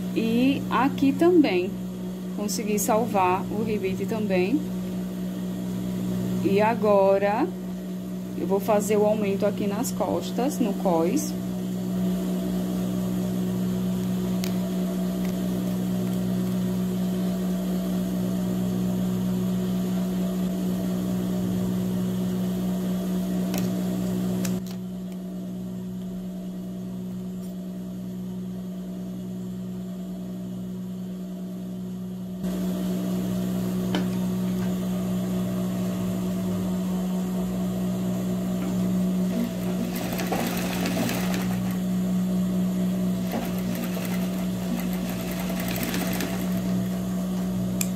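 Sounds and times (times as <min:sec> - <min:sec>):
sewing machine motor humming: 0:38.7 - 0:42.0, 0:42.7 - 0:47.6
sewing machine stitching rattle: 0:39.3 - 0:41.8, 0:43.2 - 0:46.9.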